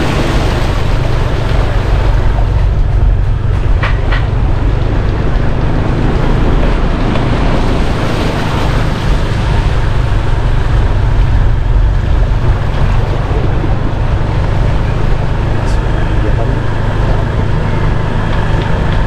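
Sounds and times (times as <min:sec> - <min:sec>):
motorbike engine: 0:00.0 - 0:19.0
water washing around wheels: 0:00.0 - 0:19.0
wind rumbling on microphone: 0:00.0 - 0:19.0.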